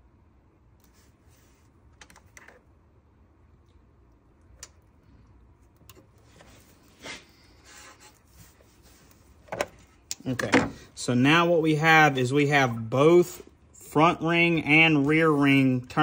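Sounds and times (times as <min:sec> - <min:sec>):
wires clicking and tapping: 0:03.6 - 0:07.0.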